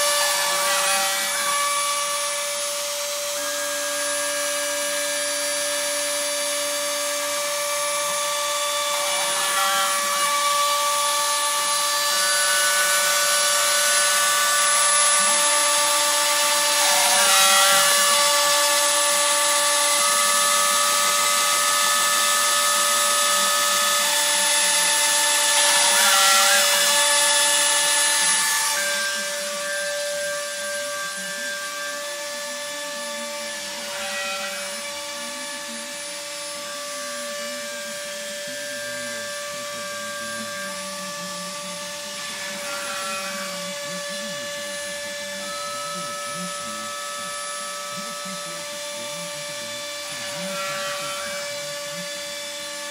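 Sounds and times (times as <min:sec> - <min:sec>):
cutting hiss: 0:00.0 - 0:52.9
rotary tool whining: 0:00.0 - 0:52.9.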